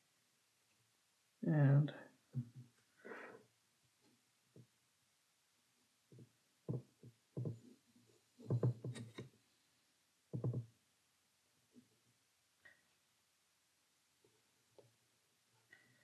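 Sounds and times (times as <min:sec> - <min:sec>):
soft low knocks: 0:08.4 - 0:09.2.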